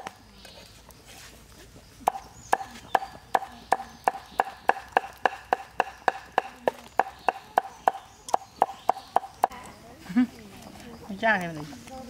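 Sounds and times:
cleaver chopping on wooden board: 2.0 - 9.6.

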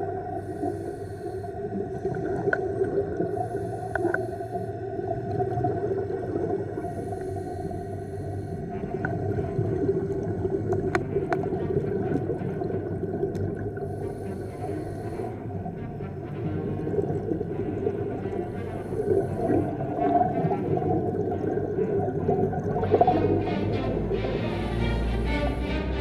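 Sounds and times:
low underwater drone: 0.0 - 26.0
regulator breaths hissing: 0.4 - 1.6, 3.3 - 4.8, 6.8 - 8.7, 13.8 - 15.4.

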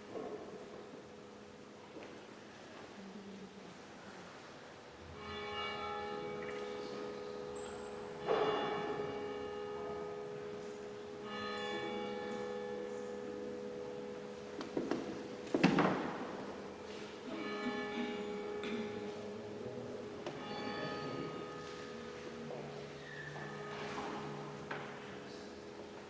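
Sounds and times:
church bell tolling: 5.0 - 25.8.

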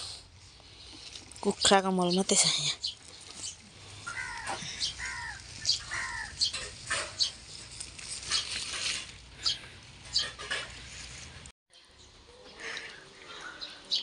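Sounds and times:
stems snapping and rustling: 3.0 - 9.6.

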